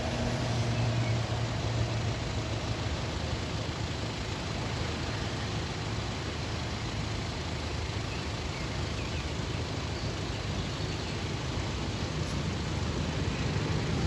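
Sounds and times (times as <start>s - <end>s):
cars idling in traffic: 0.0s - 14.0s.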